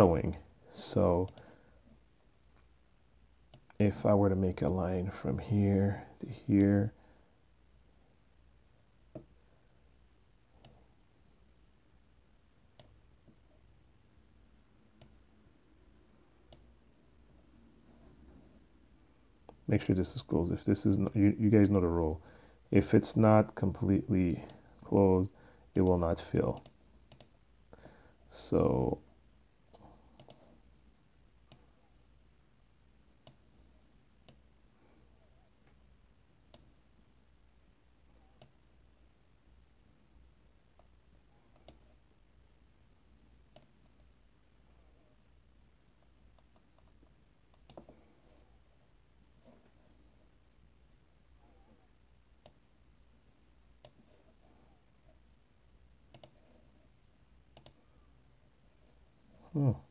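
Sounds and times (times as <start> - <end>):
computer mouse clicks: 1.2 - 1.5, 3.5 - 3.8, 10.6 - 10.8, 12.7 - 13.4, 16.4 - 16.7, 25.7 - 27.4, 29.7 - 30.6, 33.2 - 33.4, 34.2 - 34.4, 36.5 - 36.8, 38.3 - 38.6, 41.5 - 42.0, 43.5 - 44.1, 46.0 - 48.0, 52.4 - 52.6, 53.8 - 54.4, 56.1 - 56.6, 57.5 - 57.8.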